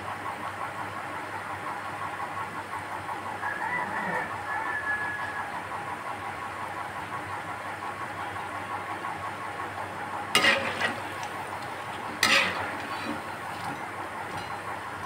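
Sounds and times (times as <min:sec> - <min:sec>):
slotted spoon scraping pan: 0:10.4 - 0:14.7
food deep-frying in hot oil: 0:10.4 - 0:15.0.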